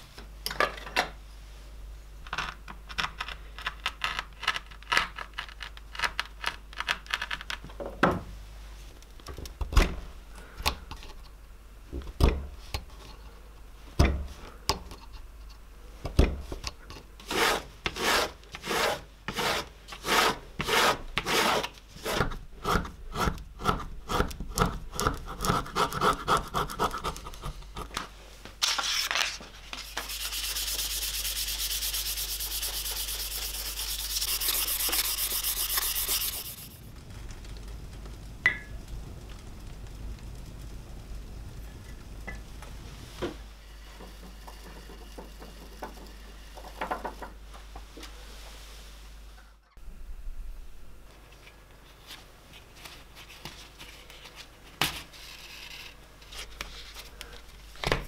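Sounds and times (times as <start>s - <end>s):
hand sanding hiss: 29.7s - 36.8s.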